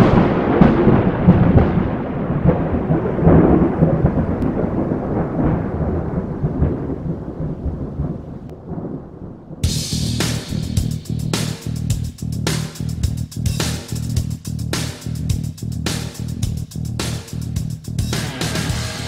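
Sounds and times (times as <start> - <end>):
rolling thunder rumbling: 0.0 - 11.8.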